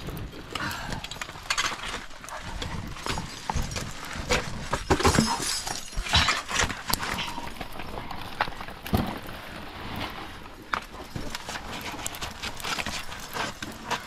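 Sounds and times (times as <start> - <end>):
metal gear clinking on rock: 0.1 - 8.2.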